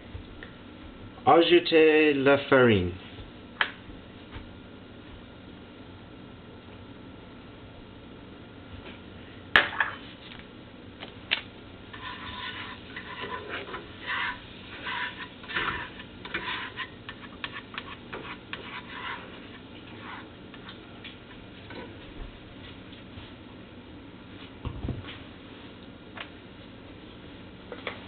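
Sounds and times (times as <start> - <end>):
spoon scraping in a pot: 11.9 - 20.8.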